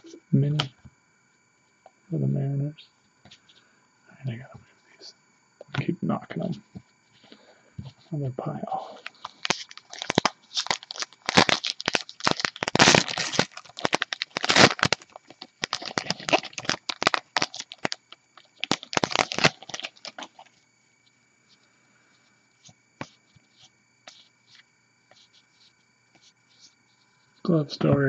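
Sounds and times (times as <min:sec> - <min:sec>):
card pack wrapper tearing and crinkling: 0:09.0 - 0:20.5.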